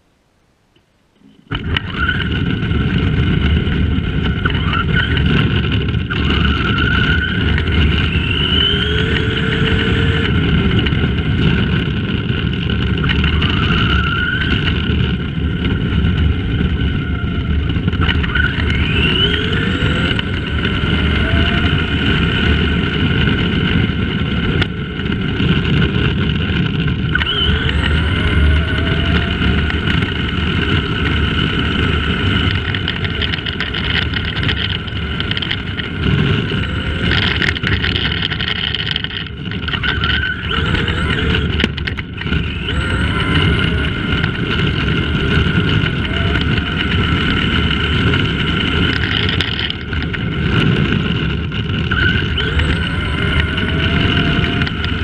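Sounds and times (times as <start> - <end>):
tyres rumbling on rough tarmac: 1.2 - 55.0
electric motor whining: 1.5 - 55.0.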